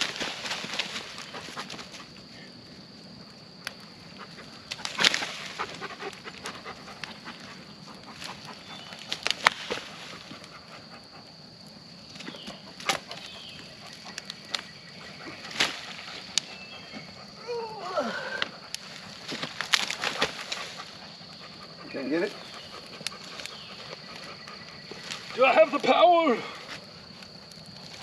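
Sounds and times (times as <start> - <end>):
dry wood cracking and snapping: 0.0 - 2.0, 4.6 - 10.5, 12.1 - 16.6, 18.2 - 21.0, 22.4 - 28.0.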